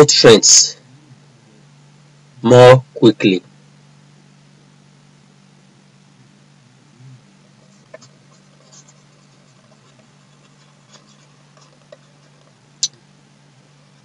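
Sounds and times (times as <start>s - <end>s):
steady low hum: 0.0s - 14.0s
stylus scratching and clicking: 7.5s - 13.0s.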